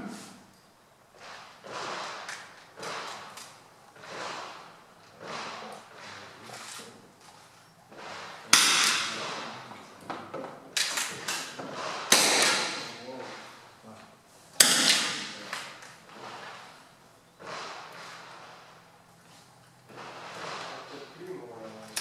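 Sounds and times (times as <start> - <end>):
rifle shots echoing: 1.2 - 6.4, 8.0 - 9.8, 10.8 - 13.8, 14.6 - 18.9, 19.9 - 21.2.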